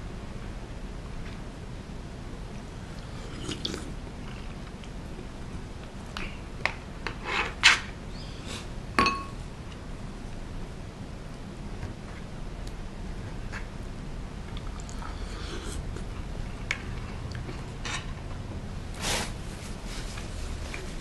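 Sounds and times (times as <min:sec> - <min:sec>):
ringing clink: 0:09.0 - 0:09.4.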